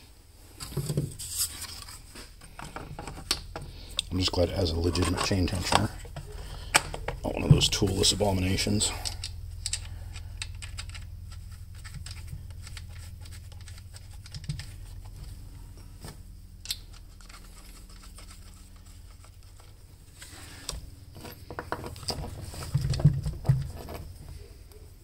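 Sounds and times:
steady low hum: 0:00.0 - 0:25.0
nuts threaded onto metal studs: 0:02.4 - 0:07.8, 0:08.8 - 0:15.2, 0:16.6 - 0:24.2
screwdriver scraping and clicking: 0:04.8 - 0:07.1, 0:09.0 - 0:14.8.

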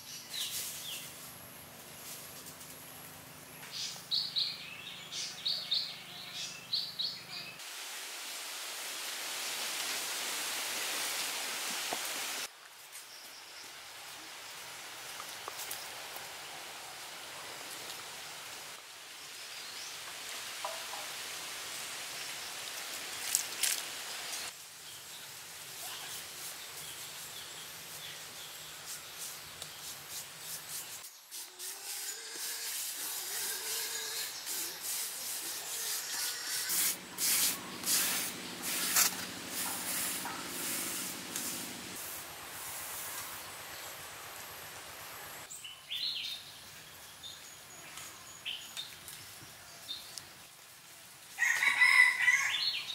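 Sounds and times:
forest ambience hiss: 0:00.0 - 0:52.9
hands scraping wet cement: 0:34.5 - 0:41.6.

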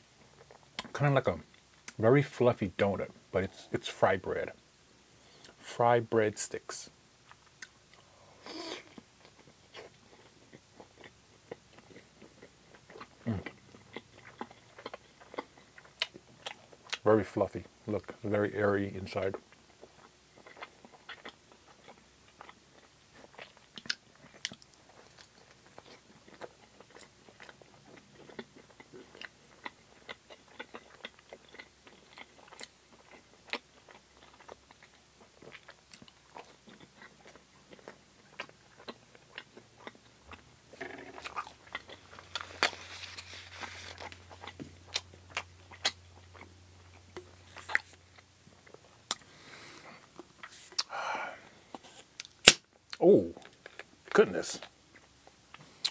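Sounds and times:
wet chewing with mouth clicks: 0:07.3 - 0:17.0, 0:19.4 - 0:51.0, 0:51.6 - 0:55.9
rustling noise: 0:42.2 - 0:44.3.

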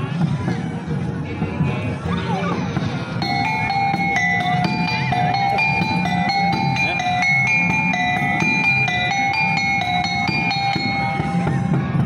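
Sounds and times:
hand drum beat: 0:03.2 - 0:12.0.

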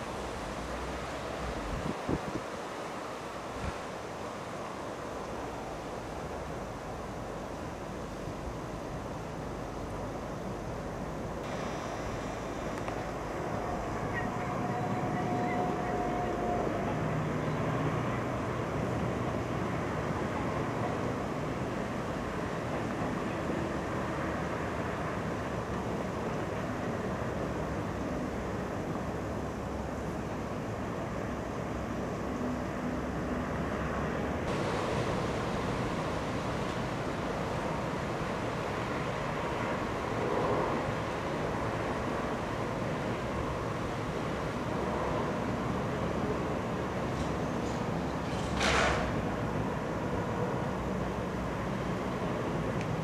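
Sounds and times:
wind on microphone: 0:00.0 - 0:04.5
distant diesel locomotive hum: 0:00.0 - 0:53.0
distant train rumble: 0:00.0 - 0:53.0
steady rushing noise: 0:00.0 - 0:53.0.

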